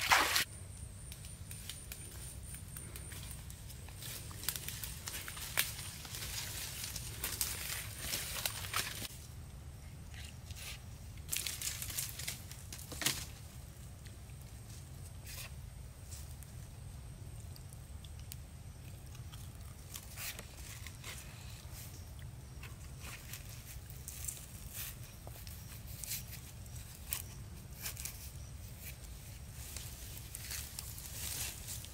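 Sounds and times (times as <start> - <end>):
dry leaf litter crackling: 1.4 - 9.1, 11.3 - 13.9, 23.0 - 31.9.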